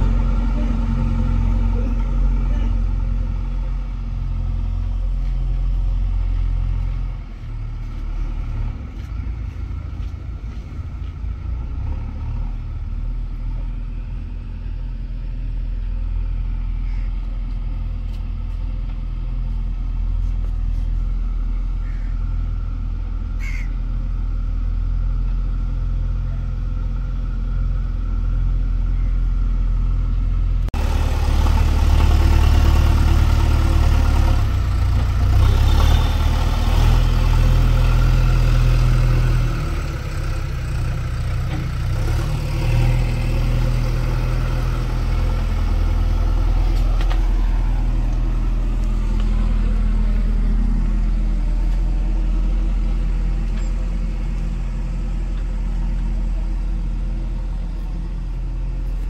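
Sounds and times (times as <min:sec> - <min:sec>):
heavy diesel engine running: 0:00.0 - 0:59.0.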